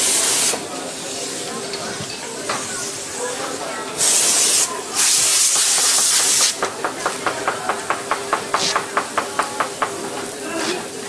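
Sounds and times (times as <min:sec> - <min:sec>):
loud hiss: 0:00.0 - 0:01.5, 0:04.0 - 0:10.8.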